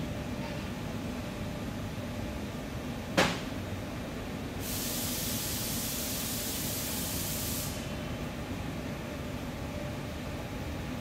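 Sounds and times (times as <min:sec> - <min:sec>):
pressurised hiss: 0:04.6 - 0:07.9.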